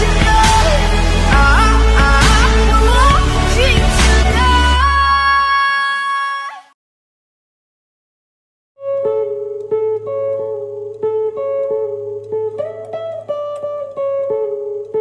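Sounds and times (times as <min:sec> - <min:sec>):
guitar picking repeating pattern: 0:00.0 - 0:04.6, 0:08.8 - 0:15.0.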